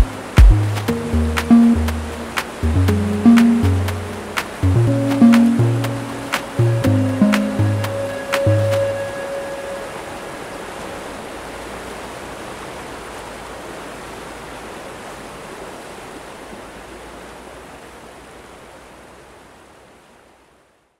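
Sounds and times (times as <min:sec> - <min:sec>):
flowing water rushing: 0:00.0 - 0:20.9.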